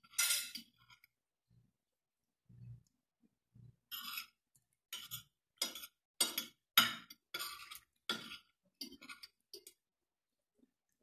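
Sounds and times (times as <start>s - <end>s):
cutlery scraping a plate: 0.0s - 1.1s, 3.8s - 9.8s.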